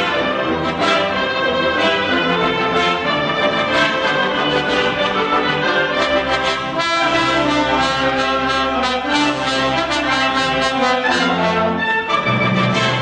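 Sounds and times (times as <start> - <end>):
brass band playing: 0.0 - 13.0.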